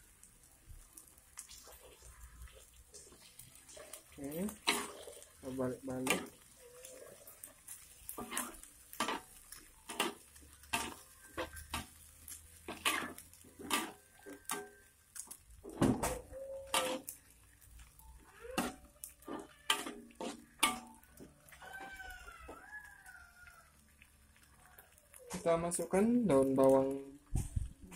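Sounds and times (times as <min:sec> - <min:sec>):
metal spatula scraping a wok: 0:01.5 - 0:14.8, 0:15.6 - 0:21.3.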